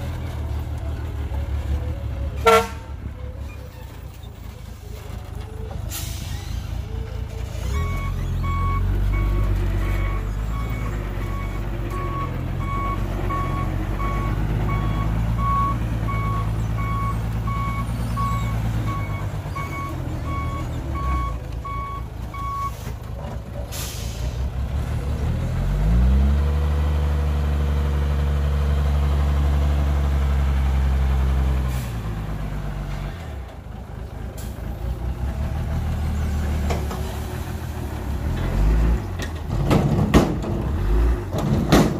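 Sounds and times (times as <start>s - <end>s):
diesel engine idling and revving: 0.0s - 41.9s
air brake hiss: 5.9s - 6.8s, 23.7s - 24.4s
truck backup alarm beeping: 7.4s - 22.9s.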